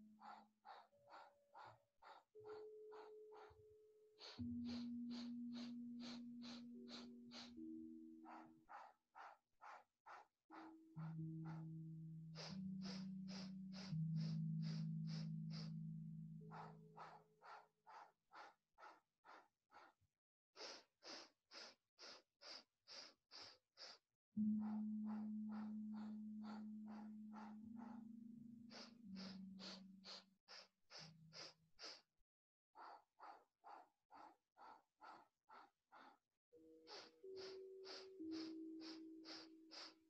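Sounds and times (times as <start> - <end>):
soft music with held low notes: 0.0 - 9.4, 10.5 - 17.7, 24.4 - 31.6, 36.5 - 40.0
sharp rhythmic breathing: 0.0 - 32.2, 32.8 - 40.0.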